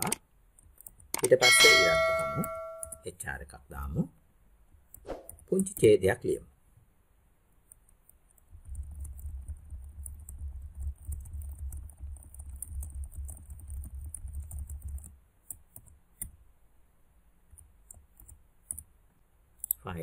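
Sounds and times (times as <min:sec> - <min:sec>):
fast typing on keyboard: 0:00.0 - 0:01.4, 0:08.3 - 0:16.0.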